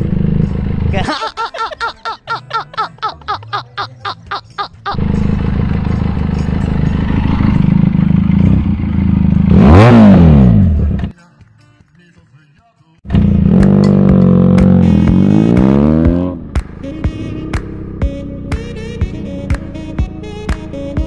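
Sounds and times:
man laughing hard: 1.0s - 5.0s
motorcycle engine idling: 4.9s - 9.5s.

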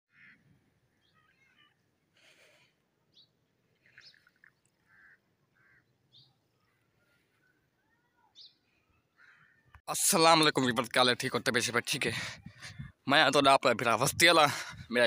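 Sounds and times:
faint bird chirps: 0.1s - 9.8s.

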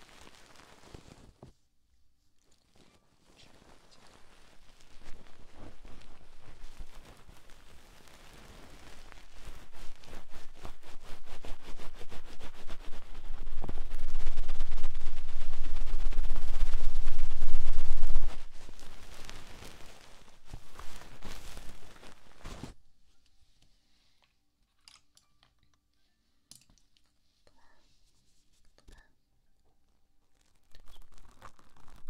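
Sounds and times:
scratching on microphone: 0.0s - 1.6s, 2.5s - 22.8s, 30.3s - 32.0s
microphone handling rumble: 13.1s - 19.2s.

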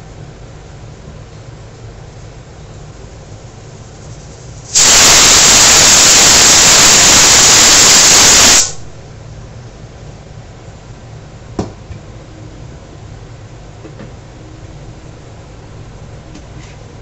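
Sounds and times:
pressure cooker steam hiss: 4.6s - 8.9s.

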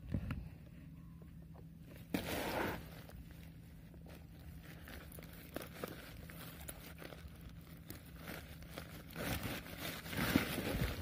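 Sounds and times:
plastic sack and net rustling: 1.9s - 11.0s.

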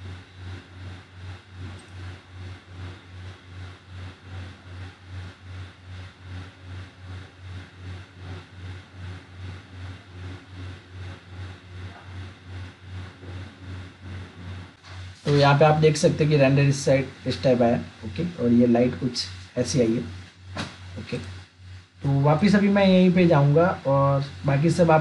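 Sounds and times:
low throbbing hum: 0.0s - 25.0s
faint hiss: 14.8s - 25.0s.

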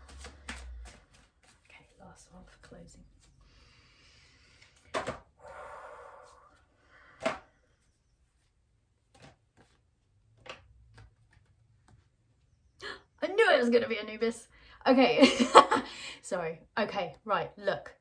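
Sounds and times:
cards rustling: 0.0s - 1.7s.

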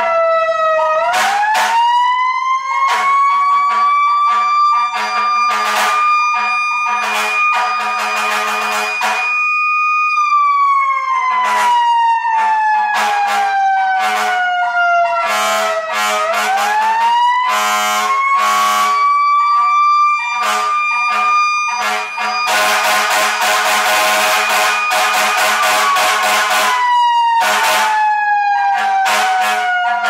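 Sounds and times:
air horn blasts: 1.1s - 1.8s, 2.9s - 9.4s, 11.3s - 11.8s, 12.9s - 19.0s, 19.6s - 30.0s.

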